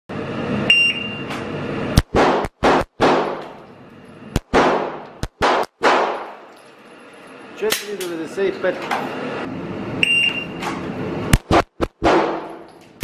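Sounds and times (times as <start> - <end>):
shot timer beep: 0.6 - 1.3, 10.0 - 10.6
pistol shots echoing: 2.1 - 3.4, 4.5 - 6.4, 12.0 - 12.6.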